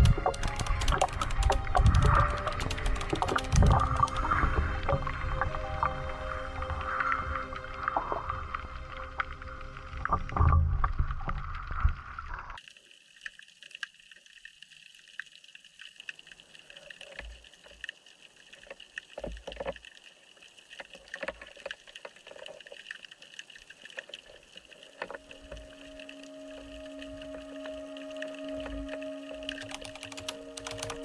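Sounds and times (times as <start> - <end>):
underwater clicks: 0.0 - 5.9, 20.8 - 31.0
steady musical tone: 0.0 - 10.1, 25.2 - 31.0
background music: 0.0 - 10.2, 25.2 - 31.0.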